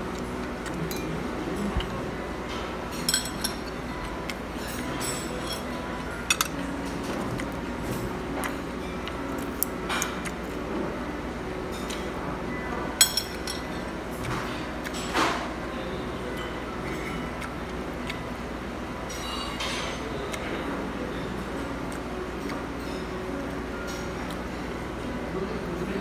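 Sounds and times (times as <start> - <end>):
restaurant background hum: 0.0 - 26.0
chopsticks clinking against dishes: 0.1 - 7.6, 13.0 - 15.5, 19.1 - 20.5.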